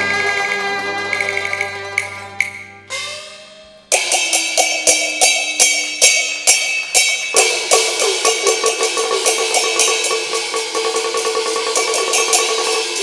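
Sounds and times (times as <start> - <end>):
gong and cymbals beating: 0.0 - 13.0.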